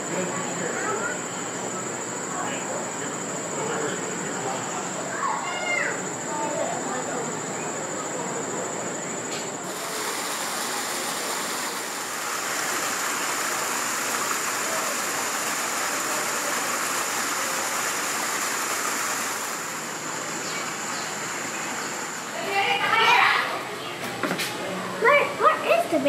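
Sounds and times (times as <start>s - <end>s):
running water rushing: 9.6s - 23.7s.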